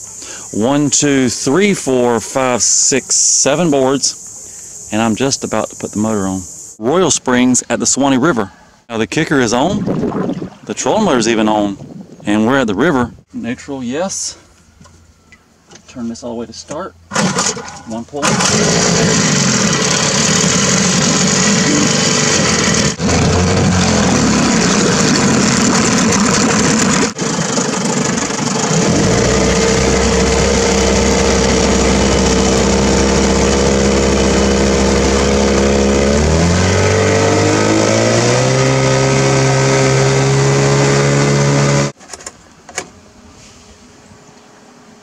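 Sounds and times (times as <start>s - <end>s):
outboard motor running: 17.1s - 42.0s.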